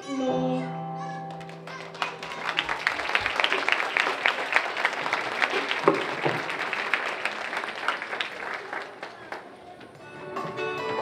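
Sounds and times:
audience applauding: 1.3 - 10.0.

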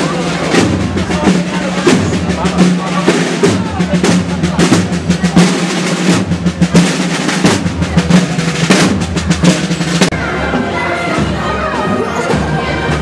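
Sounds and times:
marching field drums: 0.0 - 13.0.

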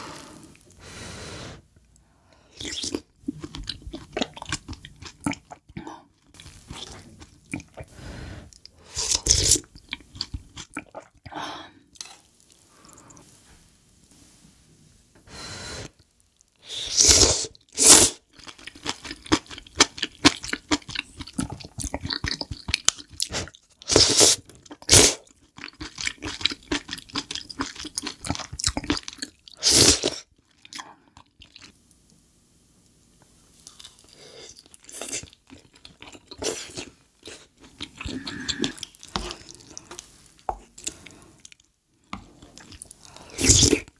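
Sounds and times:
person chewing: 2.6 - 7.9, 8.6 - 11.3, 17.1 - 31.7, 33.6 - 43.9
slurping broth and noodles: 23.3 - 25.2, 36.4 - 41.5.

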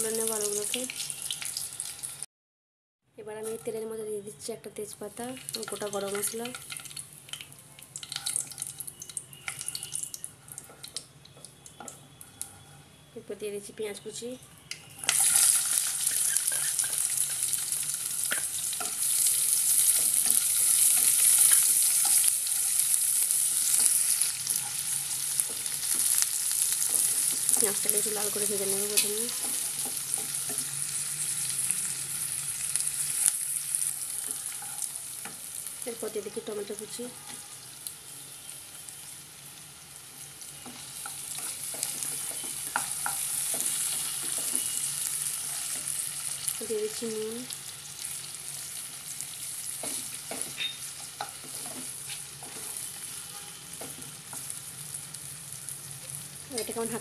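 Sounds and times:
onion sizzling in hot oil: 0.0 - 2.3, 3.2 - 57.0
spatula scraping and stirring: 15.1 - 17.6, 18.3 - 30.7, 34.2 - 35.0, 40.6 - 46.1, 49.6 - 54.5
wooden spatula scraping and tapping: 40.6 - 44.8, 49.8 - 52.8.

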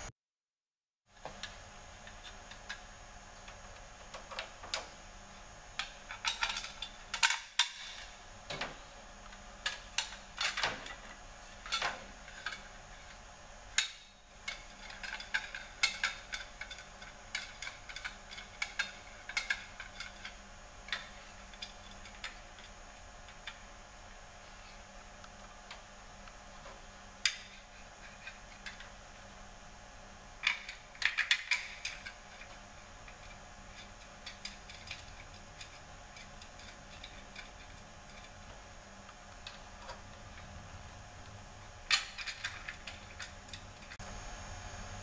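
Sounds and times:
metal tools clicking and clinking: 13.8 - 22.7, 30.4 - 38.4, 41.9 - 44.0.

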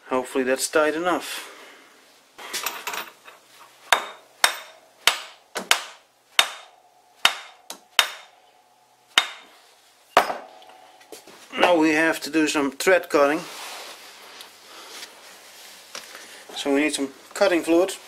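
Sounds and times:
sharp metallic knocks: 3.9 - 8.4, 9.1 - 9.5, 10.1 - 11.8.

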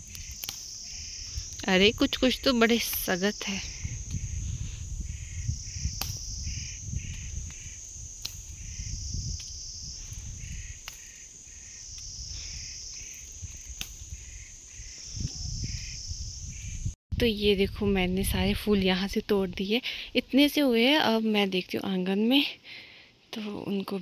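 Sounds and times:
stems snapping: 0.0 - 0.9, 5.9 - 6.3, 8.2 - 8.6, 10.8 - 11.3, 12.9 - 14.2
insects trilling: 0.0 - 17.0
low pulsing chirping: 0.0 - 17.0.

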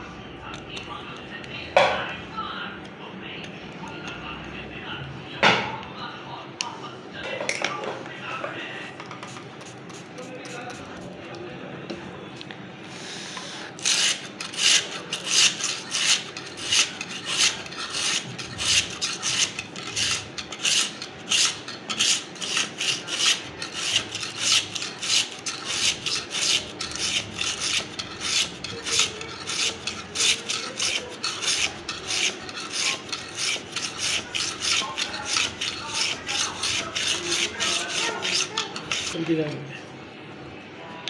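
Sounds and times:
sharpening stone rasping on knife: 9.2 - 11.1, 13.8 - 39.2.

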